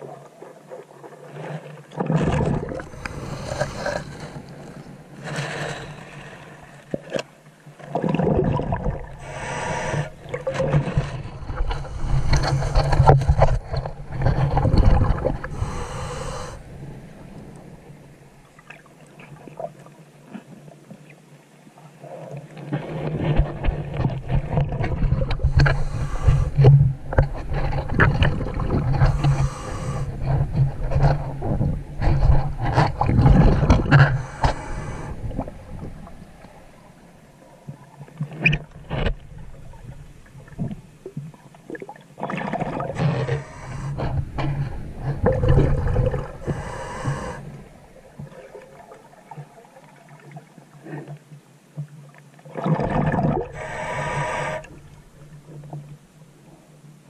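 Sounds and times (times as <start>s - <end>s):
diver exhaling bubbles: 42.3s - 48.8s, 52.6s - 55.0s.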